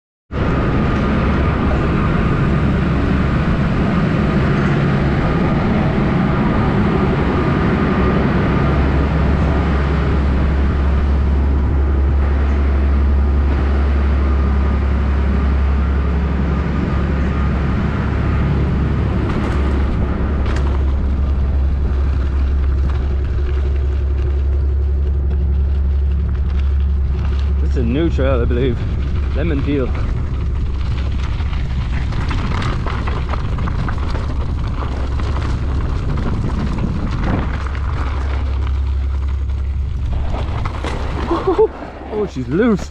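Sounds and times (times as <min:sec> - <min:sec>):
wind rumble on microphone: 0:00.3 - 0:42.9
bike rolling on gravel: 0:00.4 - 0:42.9
bike rolling on wooden deck: 0:00.4 - 0:42.9.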